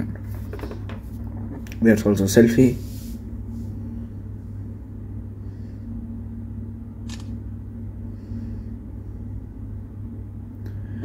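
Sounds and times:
steady low hum: 0.0s - 11.0s
camera shutter click: 7.0s - 7.4s.

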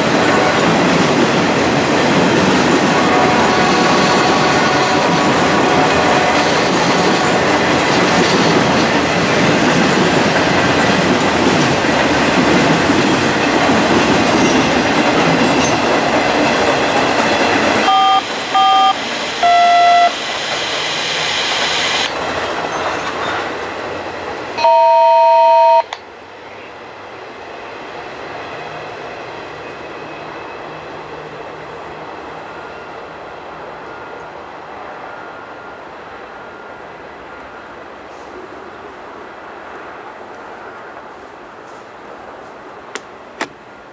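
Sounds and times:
train wheels on rails: 0.0s - 24.6s, 26.0s - 43.8s
train horn blasts: 2.9s - 6.4s, 17.8s - 20.2s.

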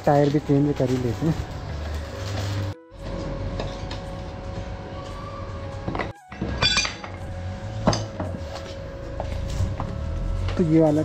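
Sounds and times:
metal tools clinking on wheel rim: 6.0s - 8.1s.

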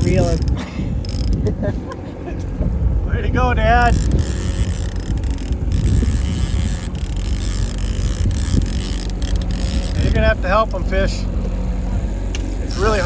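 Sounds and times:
fishing reel clicks: 0.0s - 1.4s, 3.8s - 10.2s, 12.7s - 13.0s
boat motor rumbling: 0.0s - 13.0s
wind buffeting microphone: 0.0s - 13.0s.

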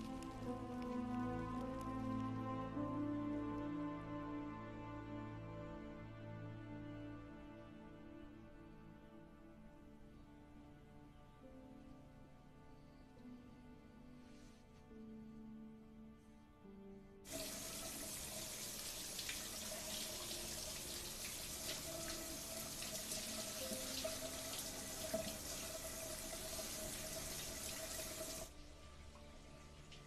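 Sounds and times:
soft music: 0.0s - 30.0s
shower head spraying water: 17.3s - 28.5s.

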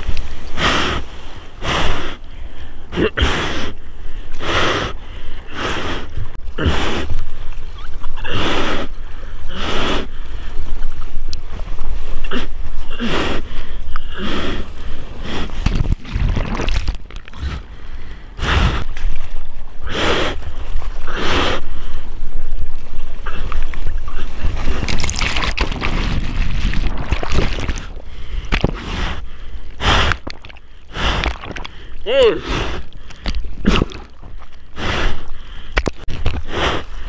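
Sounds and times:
low water rumble: 0.0s - 37.0s
water splashing against camera: 15.4s - 17.7s, 18.8s - 32.2s, 32.8s - 36.5s
heavy gasping breaths: 27.8s - 37.0s.

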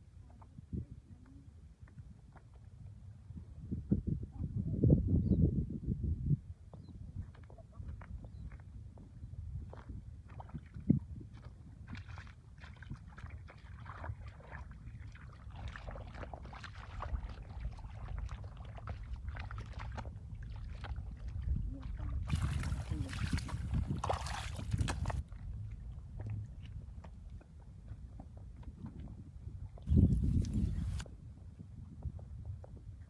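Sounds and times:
bare feet squelching in wet mud: 9.7s - 27.5s, 29.9s - 31.0s
steady low rumble: 17.1s - 32.6s.

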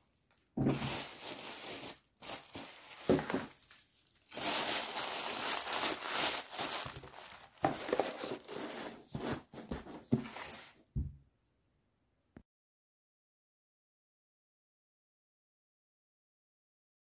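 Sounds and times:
tissue paper crinkling: 0.7s - 10.7s.

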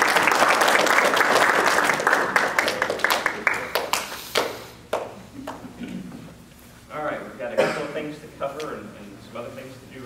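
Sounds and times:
children applauding: 0.0s - 4.5s.

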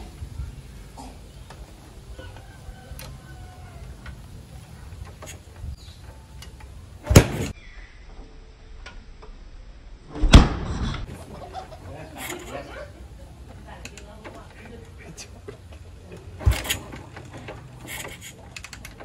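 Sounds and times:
motorcycle kickstarter strokes: 1.4s - 7.6s, 13.9s - 19.0s.

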